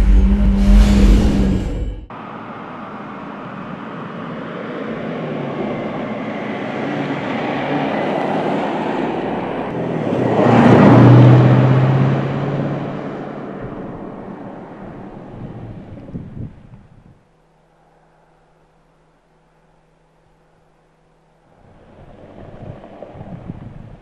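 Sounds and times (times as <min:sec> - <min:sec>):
car engine driving by: 0:00.0 - 0:04.1, 0:07.0 - 0:16.0.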